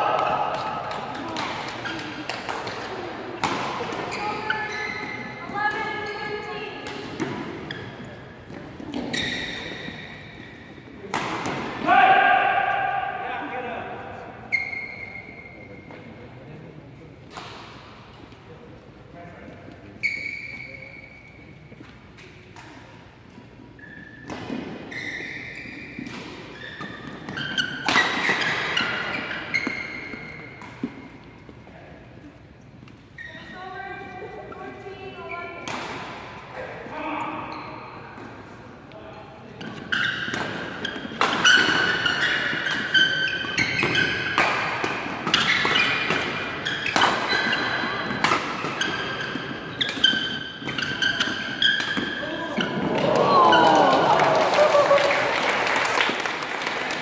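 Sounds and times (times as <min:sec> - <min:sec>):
rackets hitting shuttlecock: 0:00.0 - 0:06.1, 0:11.0 - 0:11.9, 0:25.7 - 0:31.5, 0:35.6 - 0:36.4, 0:39.6 - 0:53.1
shoes squeaking on court: 0:01.6 - 0:03.0, 0:03.9 - 0:10.8, 0:14.5 - 0:16.1, 0:19.8 - 0:31.6, 0:32.6 - 0:33.8, 0:39.5 - 0:44.4, 0:45.0 - 0:53.0
rackets striking shuttlecock: 0:39.6 - 0:52.2.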